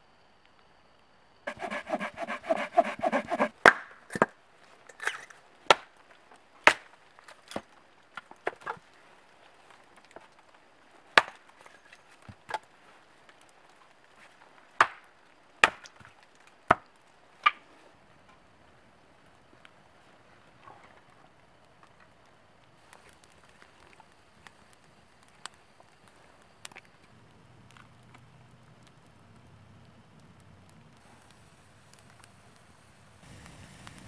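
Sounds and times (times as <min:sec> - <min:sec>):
blade splitting firewood: 0:01.5 - 0:03.6.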